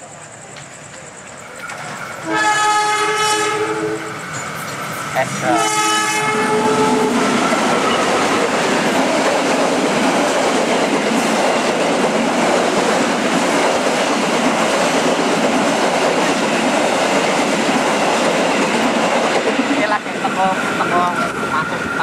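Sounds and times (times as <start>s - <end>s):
train passing at speed: 0.0s - 22.0s
train horn: 2.2s - 4.2s, 5.3s - 7.4s.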